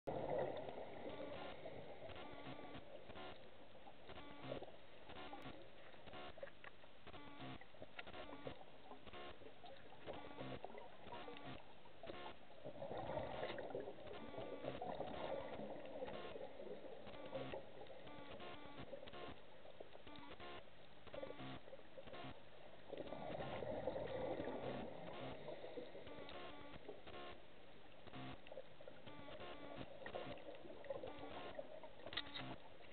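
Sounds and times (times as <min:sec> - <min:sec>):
faint clicks and crackles: 0:00.1 - 0:32.9
diver's exhaled bubbles: 0:12.7 - 0:14.0.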